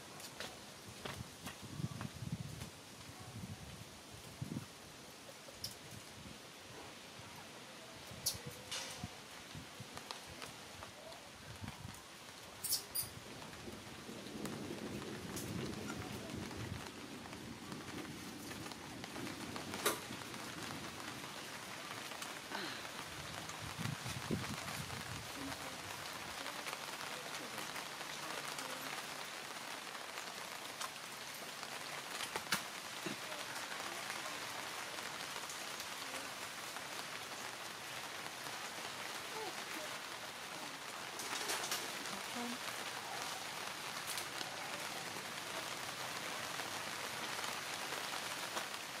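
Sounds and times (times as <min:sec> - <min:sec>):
light rain on leaves: 0:00.0 - 0:49.0.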